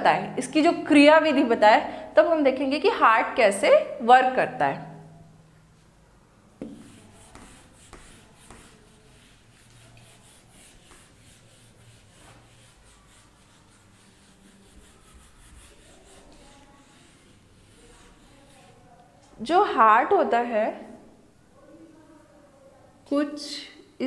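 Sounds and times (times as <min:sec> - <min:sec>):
eraser rubbing on whiteboard: 0:06.6 - 0:18.9.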